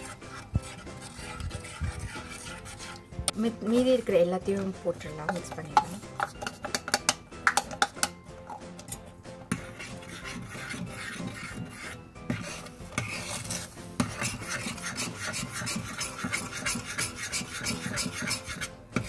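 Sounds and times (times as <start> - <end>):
metal spoon scraping a pot: 0.0 - 19.0
spoon knocking on pot: 5.1 - 8.2.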